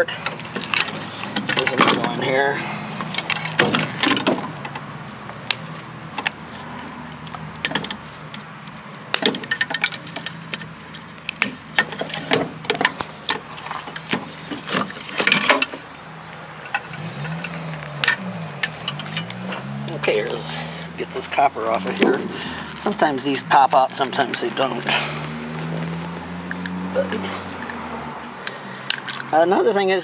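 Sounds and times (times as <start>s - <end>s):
tools and metal parts clattering: 0.0s - 4.8s, 7.6s - 15.9s, 16.5s - 25.9s, 28.8s - 29.4s
wire cutters snipping: 16.6s - 27.8s.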